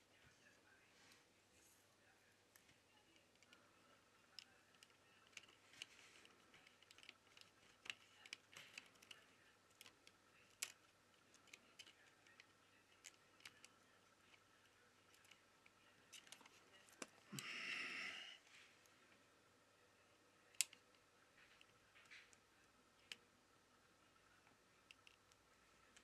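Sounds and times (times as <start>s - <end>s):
small plastic clicks and taps: 4.3s - 14.4s, 20.5s - 22.4s, 24.4s - 26.0s.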